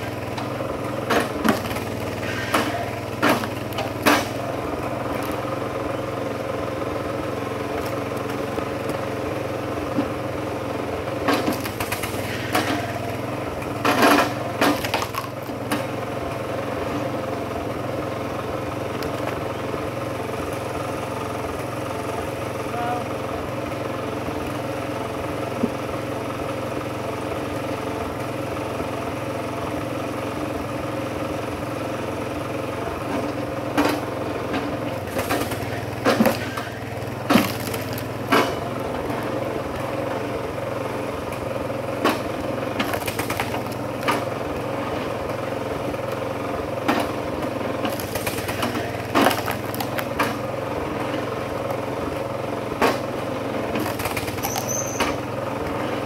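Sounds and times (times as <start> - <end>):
small gasoline engine running: 0.0 - 56.0
wood cracking and knocking: 1.1 - 2.0, 2.6 - 4.4, 11.2 - 13.0, 13.9 - 15.9, 35.0 - 38.7, 42.1 - 44.3, 47.8 - 50.4, 53.8 - 55.2.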